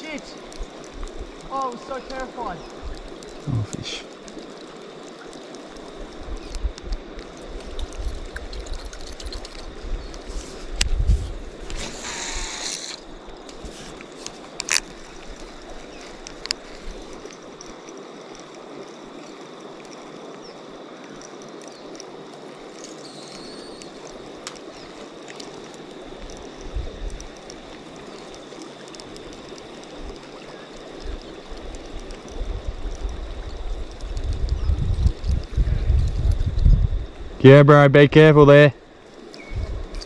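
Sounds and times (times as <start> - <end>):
river water running: 0.0 - 35.6, 37.0 - 40.0
wind on the microphone: 2.5 - 4.0, 5.8 - 12.7, 26.1 - 27.7, 30.8 - 37.5, 39.4 - 40.0.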